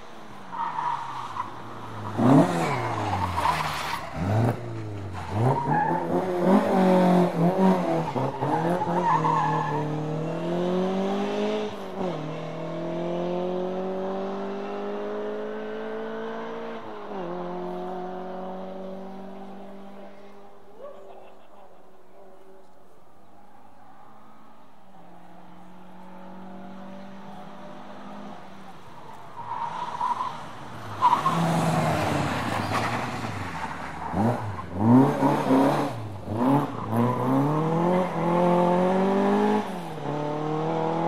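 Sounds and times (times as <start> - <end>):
rally car engines revving: 0.0 - 21.9, 23.8 - 41.0
car accelerating away: 1.9 - 20.6, 25.2 - 29.6, 30.2 - 41.0.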